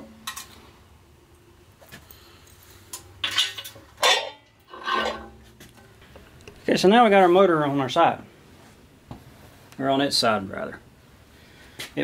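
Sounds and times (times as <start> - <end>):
metallic clanks and rattles: 2.9 - 5.9.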